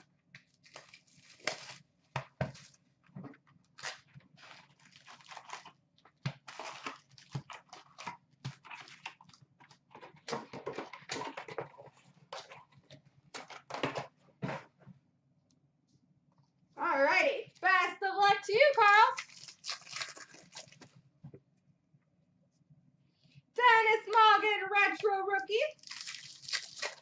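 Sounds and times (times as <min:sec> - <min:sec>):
plastic wrap crinkling and tearing: 0:00.0 - 0:02.8, 0:03.6 - 0:10.2, 0:19.1 - 0:20.9, 0:25.7 - 0:27.0
foil packs rustling: 0:00.5 - 0:02.8, 0:03.8 - 0:09.3.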